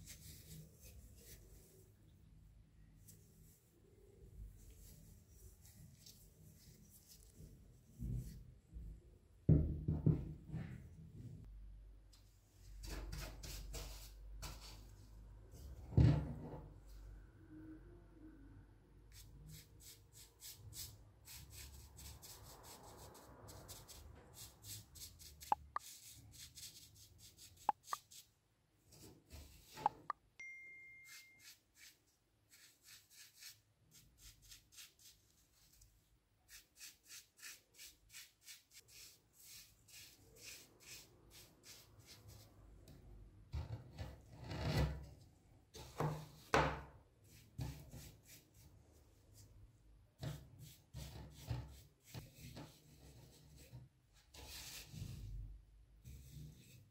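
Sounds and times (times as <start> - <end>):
brush scrubbing metal: 31.1 - 35.8.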